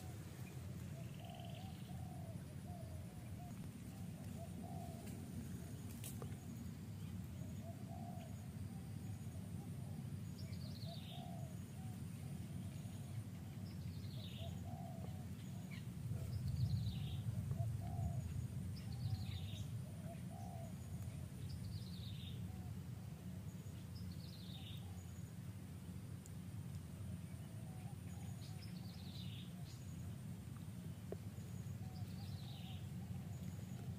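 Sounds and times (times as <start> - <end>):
soft bird cooing: 0.0 - 23.4, 27.3 - 30.2, 31.6 - 33.9
low background rumble: 0.0 - 33.9.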